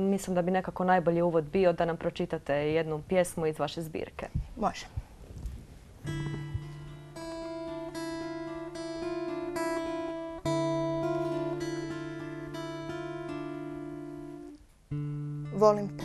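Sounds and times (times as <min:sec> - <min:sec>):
acoustic guitar picking: 0:06.0 - 0:16.0.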